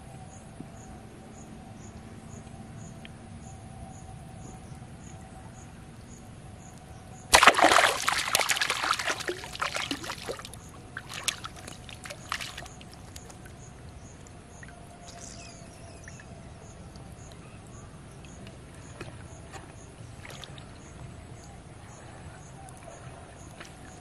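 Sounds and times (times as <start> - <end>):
fish splashing at water surface: 7.3 - 13.5.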